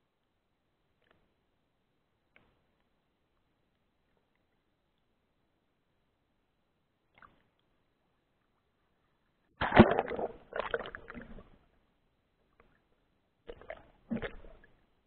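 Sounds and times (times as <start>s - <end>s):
muffled underwater sloshing: 13.5s - 14.8s.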